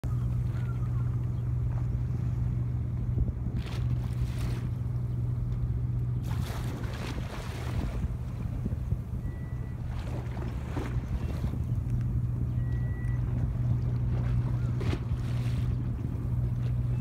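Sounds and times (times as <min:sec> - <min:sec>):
boat engine humming: 0:00.0 - 0:17.0.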